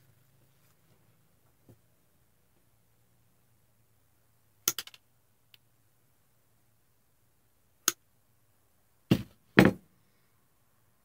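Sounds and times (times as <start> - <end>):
heavy knocks: 9.1 - 9.8.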